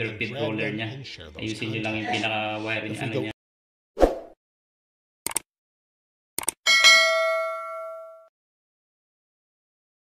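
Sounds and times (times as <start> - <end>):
notification bell chime: 6.7 - 8.3.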